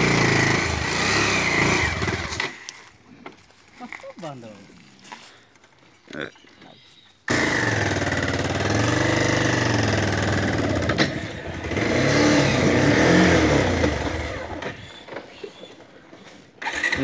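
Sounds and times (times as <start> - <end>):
motorcycle engine revving: 0.0 - 2.6, 7.3 - 15.2, 16.6 - 17.0.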